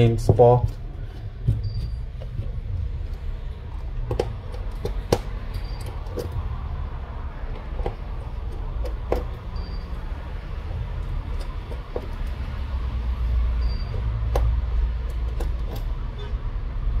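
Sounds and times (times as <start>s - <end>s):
screwdriver clicks and taps: 4.0s - 6.4s, 7.5s - 9.4s, 14.2s - 15.9s.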